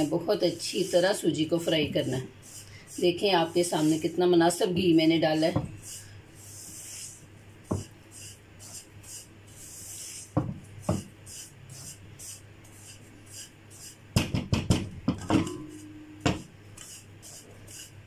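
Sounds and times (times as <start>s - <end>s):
spatula scraping semolina in pan: 0.0s - 14.1s, 16.7s - 18.0s
spatula knocking against pan: 14.2s - 16.5s.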